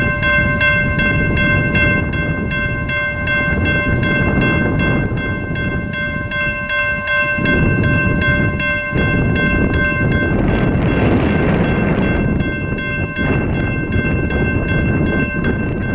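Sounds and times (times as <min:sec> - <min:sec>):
railroad crossing bell ringing: 0:00.0 - 0:15.9
low rumble: 0:07.4 - 0:15.9.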